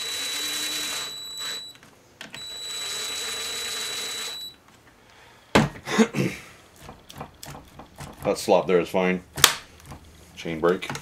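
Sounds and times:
cordless drill whining: 0:00.0 - 0:04.6.

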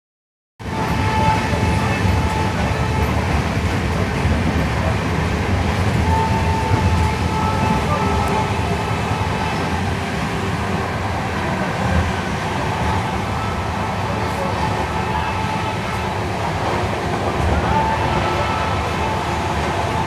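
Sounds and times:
train wheels rumbling on track: 0:00.6 - 0:20.0.

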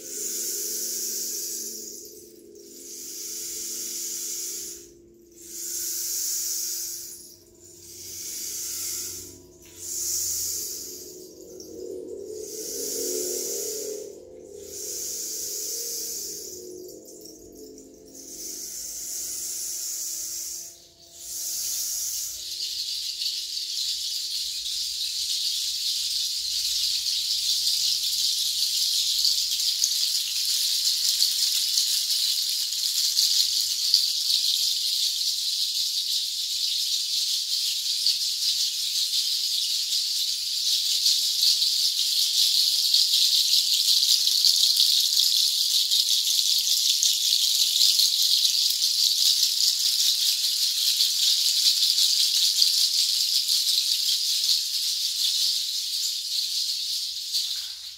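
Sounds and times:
bundle rattle shaking: 0:22.4 - 0:57.9.

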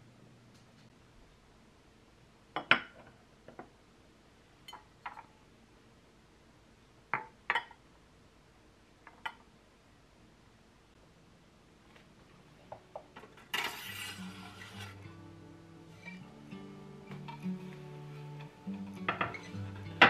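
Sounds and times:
dishes clinking on a countertop: 0:02.6 - 0:03.7, 0:04.7 - 0:05.3, 0:07.1 - 0:07.8, 0:19.1 - 0:19.6.

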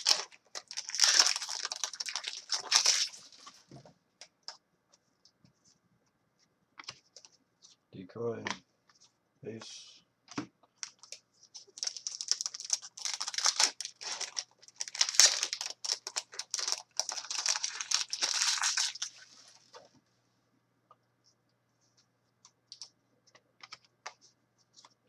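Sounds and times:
foil wrappers crinkling and tearing: 0:00.0 - 0:03.5, 0:11.7 - 0:19.6
cards rustling: 0:00.0 - 0:03.8, 0:10.8 - 0:19.8.

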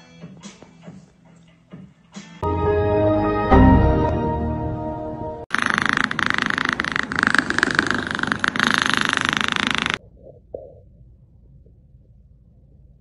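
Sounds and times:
cat making raspy rattling sound: 0:05.5 - 0:10.0.

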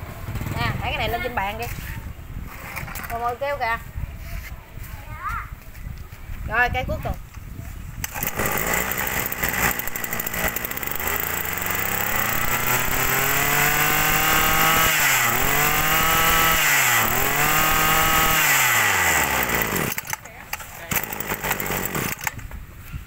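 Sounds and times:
brush cutter engine revving: 0:08.0 - 0:22.5.

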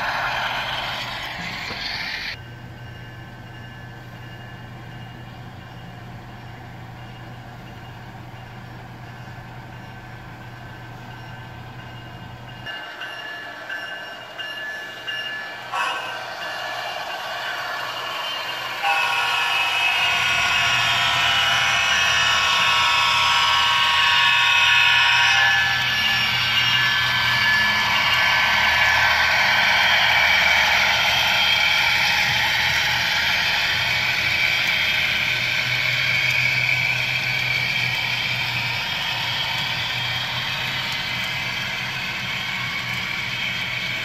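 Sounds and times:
model train horn: 0:15.8 - 0:16.2, 0:18.8 - 0:27.6.

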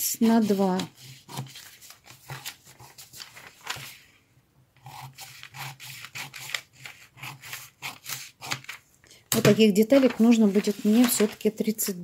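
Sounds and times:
paper rustling: 0:00.2 - 0:04.2, 0:05.2 - 0:12.0
scissors snipping paper: 0:04.8 - 0:08.8.

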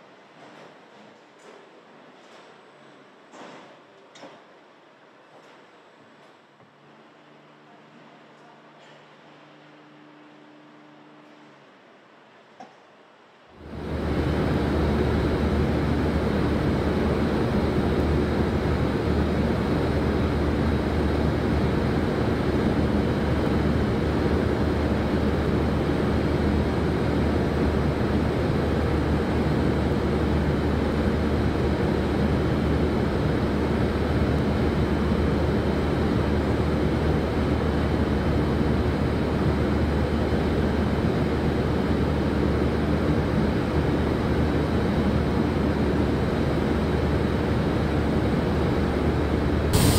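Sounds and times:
industrial machinery drone: 0:13.6 - 0:49.9.

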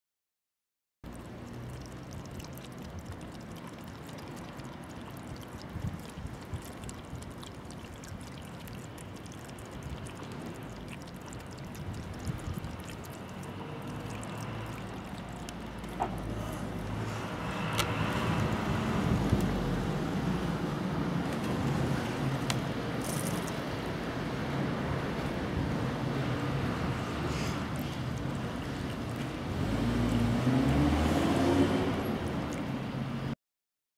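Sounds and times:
water trickling: 0:01.0 - 0:33.3
outdoor noise: 0:01.0 - 0:33.4
cats licking ice: 0:01.1 - 0:19.5, 0:26.7 - 0:30.9.

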